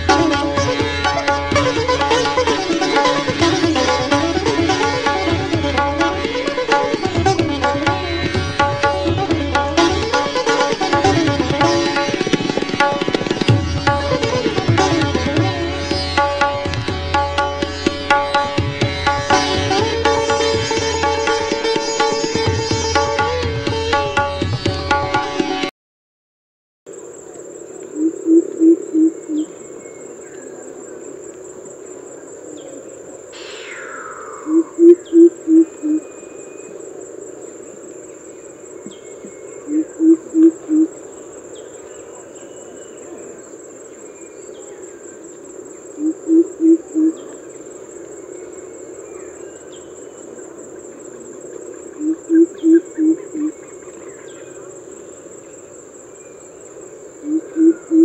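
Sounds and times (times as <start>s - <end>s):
high insect drone: 0.0s - 25.6s, 26.9s - 58.0s
bird low hooting call: 27.9s - 30.7s, 33.4s - 36.8s, 57.2s - 58.0s
falling bird call: 33.4s - 36.7s.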